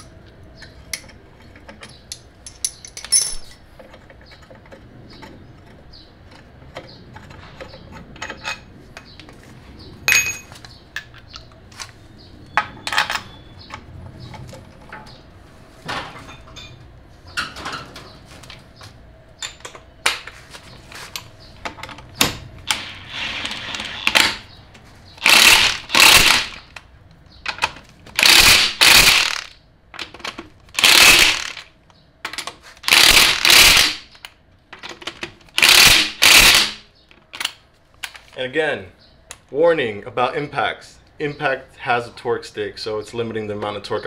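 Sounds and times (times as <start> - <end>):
impact wrench tightening bolts: 25.2 - 26.7, 28.2 - 29.5, 30.8 - 31.6, 32.8 - 34.2, 35.6 - 36.8.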